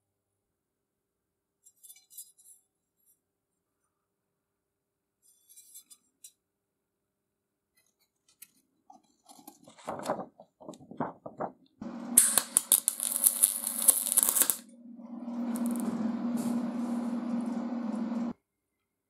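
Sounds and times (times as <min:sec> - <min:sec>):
faint clicks and scrapes: 0:01.6 - 0:03.2, 0:05.2 - 0:06.4, 0:07.7 - 0:14.7
hissing weld: 0:11.8 - 0:18.3
steady low hum: 0:11.8 - 0:18.3
welding arc crackling: 0:11.8 - 0:18.3.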